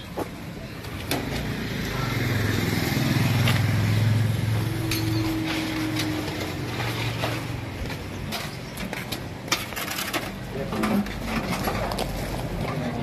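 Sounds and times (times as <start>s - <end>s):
vehicle engine passing: 1.1s - 8.1s.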